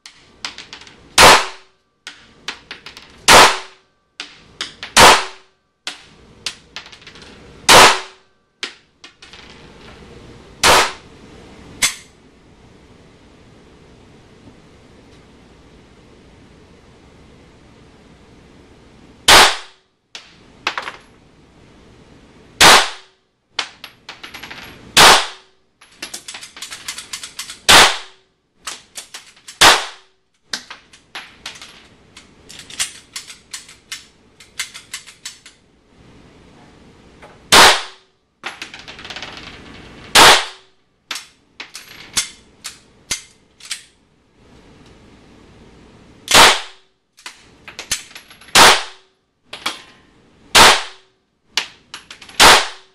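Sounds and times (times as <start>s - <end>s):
echoing pistol shots indoors: 1.2s - 1.8s, 3.2s - 3.9s, 4.8s - 5.5s, 7.7s - 8.4s, 10.6s - 11.0s, 19.3s - 19.8s, 22.6s - 23.2s, 25.0s - 25.6s, 27.6s - 28.3s, 29.5s - 30.1s, 37.5s - 38.2s, 40.1s - 40.8s, 46.3s - 46.9s, 48.5s - 49.1s, 50.5s - 51.1s, 52.4s - 52.9s.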